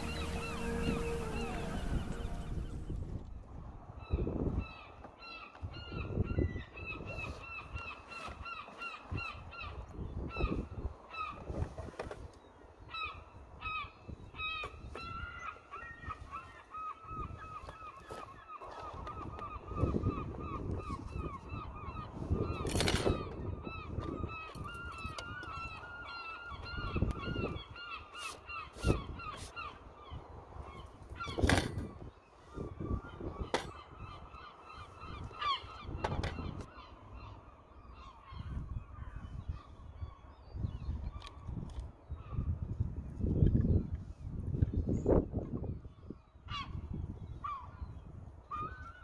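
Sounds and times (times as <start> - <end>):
geese honking: 0.0 - 2.8
low rumbling background: 0.0 - 3.4
wind on the microphone: 0.0 - 49.0.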